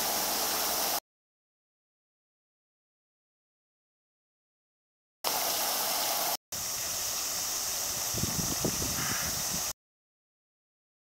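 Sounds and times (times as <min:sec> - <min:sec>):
fountain spray splashing on water: 0:00.0 - 0:01.0, 0:05.3 - 0:09.7.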